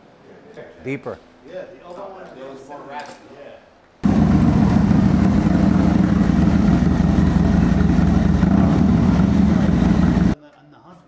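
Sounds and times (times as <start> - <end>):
motorcycle engine idling: 4.0 - 10.4.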